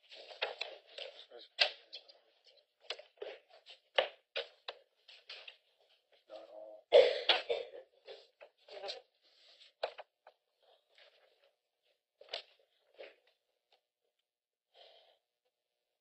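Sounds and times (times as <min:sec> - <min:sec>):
person coughing: 0:06.9 - 0:08.0.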